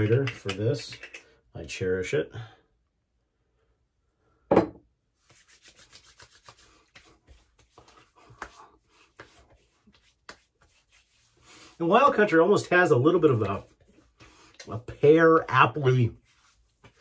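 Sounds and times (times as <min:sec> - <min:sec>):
palms rubbing and patting skin: 0:05.2 - 0:17.0
hand slapping face: 0:05.3 - 0:10.7.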